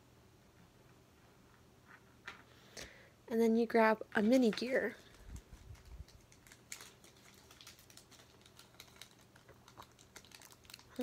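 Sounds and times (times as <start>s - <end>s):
plastic bag clicks and crinkles: 5.0s - 11.0s.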